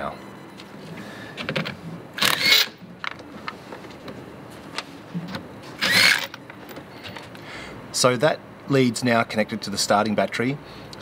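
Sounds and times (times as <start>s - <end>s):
cordless drill running: 2.2s - 2.7s, 5.8s - 6.3s.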